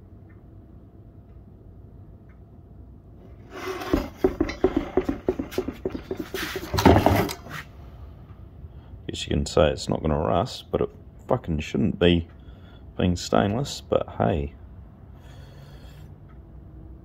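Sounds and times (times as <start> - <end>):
faint steady hum: 0.0 - 17.0
hands scraping and knocking metal: 3.3 - 7.6.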